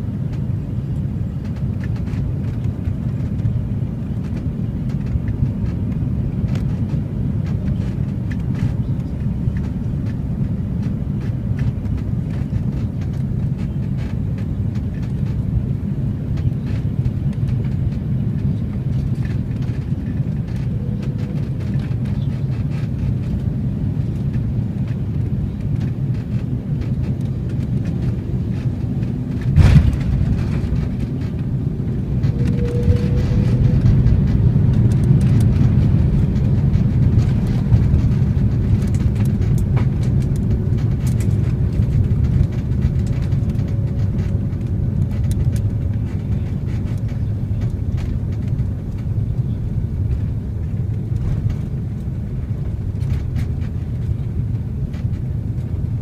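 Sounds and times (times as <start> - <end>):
airliner cabin rumble: 0.0 - 56.0
wheels touching down thump: 29.4 - 31.4.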